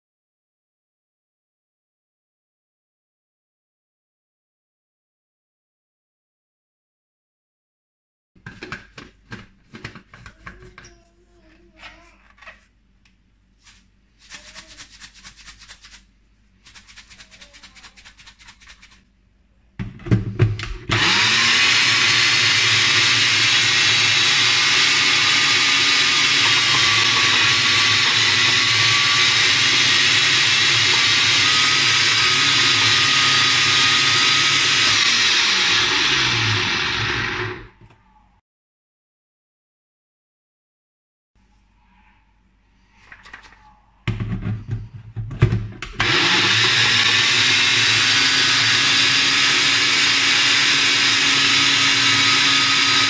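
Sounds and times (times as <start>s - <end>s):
blender motor whining: 20.6s - 37.8s, 45.9s - 53.0s.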